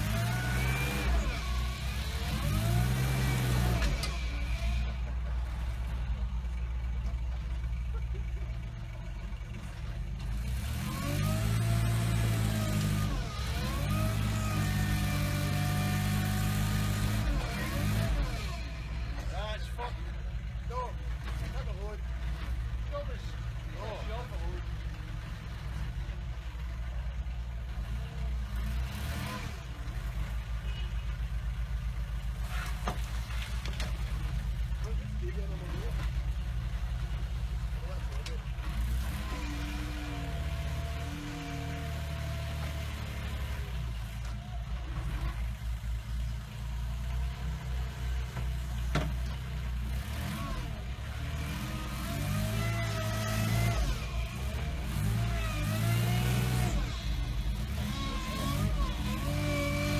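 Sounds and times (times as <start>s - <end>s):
small dumper engine revving: 0.0s - 59.9s.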